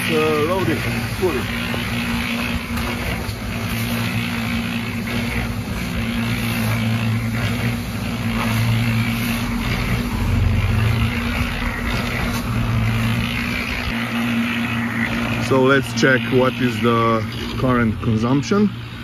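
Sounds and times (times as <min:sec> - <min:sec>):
concrete mixer motor humming: 0:00.0 - 0:19.0
shovel scraping gravel: 0:00.1 - 0:13.9.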